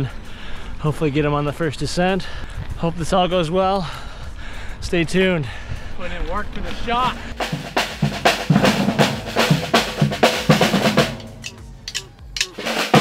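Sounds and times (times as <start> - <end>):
samba percussion drumming: 7.3 - 13.0.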